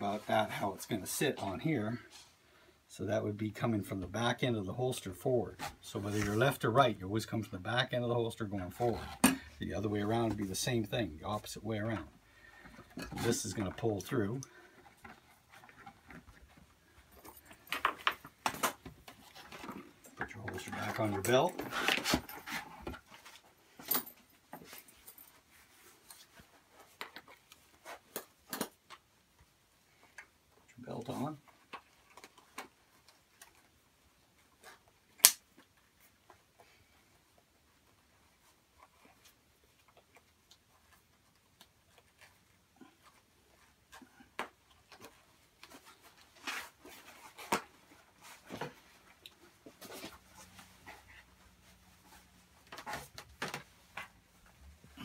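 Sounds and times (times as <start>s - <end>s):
leather rustling: 8.6s - 28.4s.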